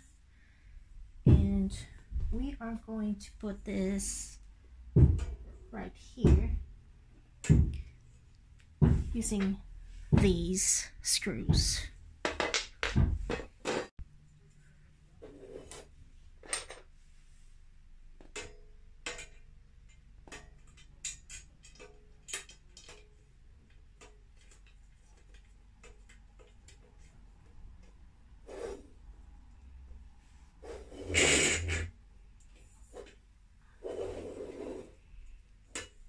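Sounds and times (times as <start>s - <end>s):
metal tubes clicking and knocking: 18.2s - 28.1s, 35.6s - 36.0s.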